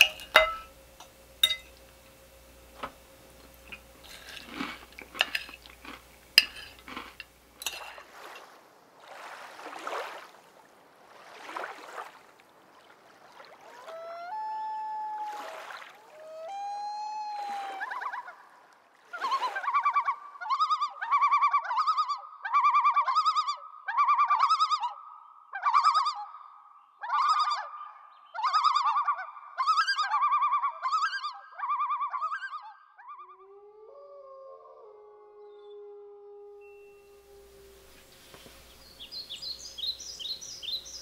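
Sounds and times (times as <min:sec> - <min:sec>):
loon calling: 0:13.6 - 0:26.4, 0:27.0 - 0:41.0.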